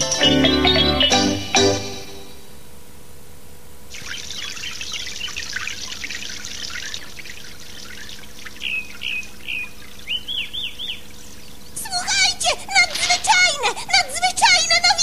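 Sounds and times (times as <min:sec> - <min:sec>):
bird chirping: 0:00.0 - 0:02.7, 0:03.9 - 0:13.5
water pouring from watering can: 0:04.0 - 0:08.6.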